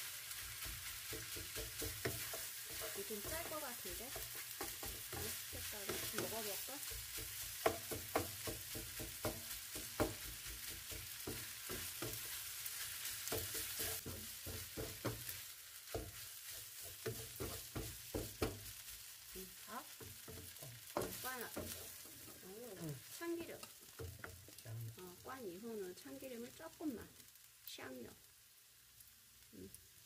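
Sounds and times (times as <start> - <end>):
wooden spatula scraping: 0.0 - 25.2
rice sizzling in a wok: 0.0 - 30.0
spatula knocking against pan: 0.6 - 12.4, 13.3 - 15.3, 15.9 - 18.7, 19.9 - 22.4.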